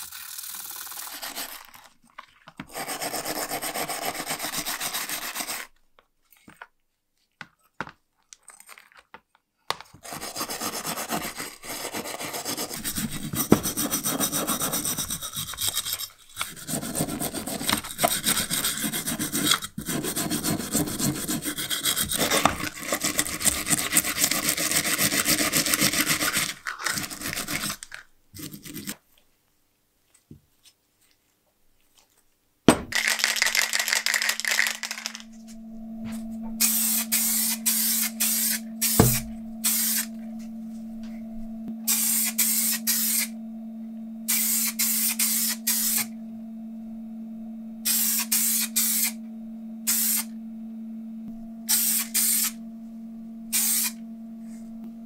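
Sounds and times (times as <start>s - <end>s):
brush scrubbing metal: 0.0s - 1.8s, 2.7s - 5.7s, 10.0s - 27.8s
steady low hum: 32.7s - 55.0s
paint spraying in hissing bursts: 36.6s - 40.1s, 41.9s - 43.3s, 44.3s - 46.1s, 49.9s - 50.3s, 51.7s - 52.6s, 53.5s - 54.0s
sharp knock: 39.0s - 39.3s.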